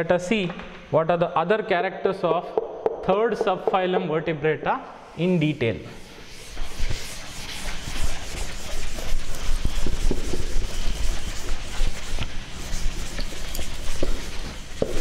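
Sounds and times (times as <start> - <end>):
duster scrubbing blackboard: 5.2 - 15.0.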